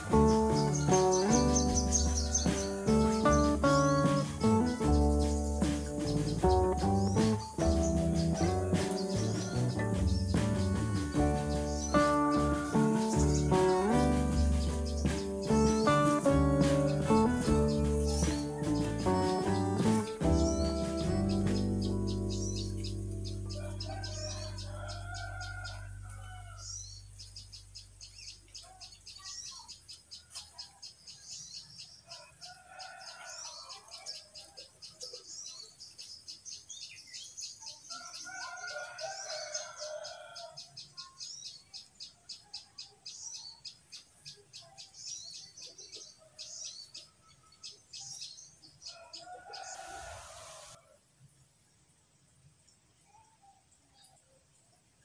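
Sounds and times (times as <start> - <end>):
rapid high chirping: 0.0 - 25.1
faint background music: 0.0 - 29.8.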